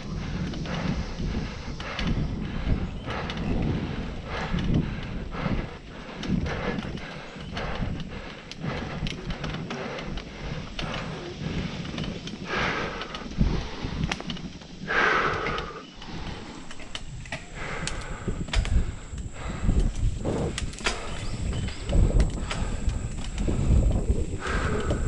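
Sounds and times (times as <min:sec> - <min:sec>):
bike rattling over bumps: 0:00.0 - 0:25.0
bike tyres on dirt and leaves: 0:00.0 - 0:25.0.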